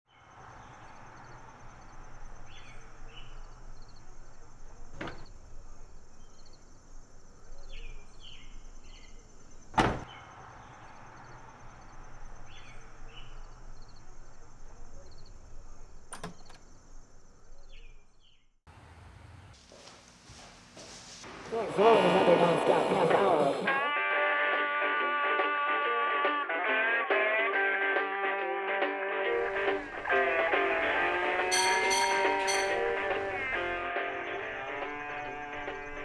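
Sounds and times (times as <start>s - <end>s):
steady outdoor hiss: 0.2s - 18.0s, 29.3s - 31.5s
car door shutting: 4.9s - 5.3s, 9.7s - 10.2s.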